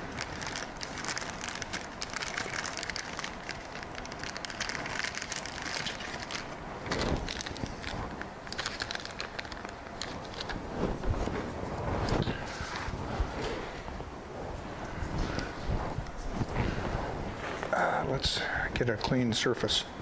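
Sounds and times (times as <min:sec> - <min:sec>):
plastic bag crinkling: 0:00.0 - 0:13.5.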